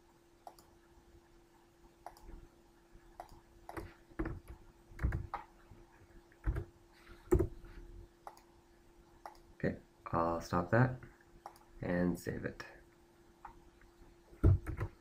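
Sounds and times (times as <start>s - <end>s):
faint steady hum: 0.0s - 15.0s
computer mouse clicks: 0.4s - 0.8s, 2.0s - 2.4s, 3.2s - 5.5s, 8.2s - 8.5s, 9.2s - 9.5s, 11.4s - 11.7s.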